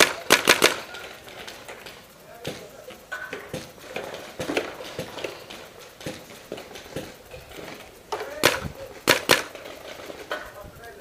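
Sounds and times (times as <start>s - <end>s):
loud sharp shot: 0.0s - 1.0s, 8.4s - 9.5s.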